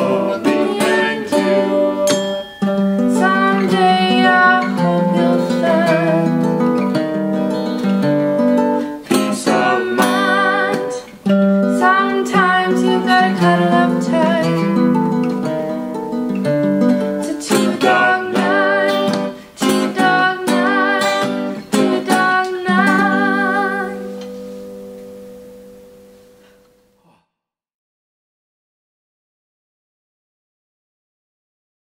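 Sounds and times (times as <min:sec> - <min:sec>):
woman singing with vibrato: 0:00.0 - 0:06.7, 0:08.8 - 0:15.9, 0:17.2 - 0:24.2
acoustic guitars strummed: 0:00.0 - 0:26.9.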